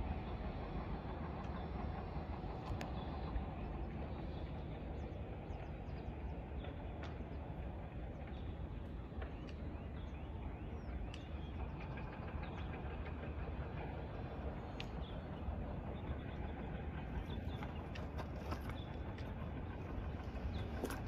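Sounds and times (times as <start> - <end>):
distant city rumble: 0.0 - 21.0
small birds chirping: 9.2 - 13.0.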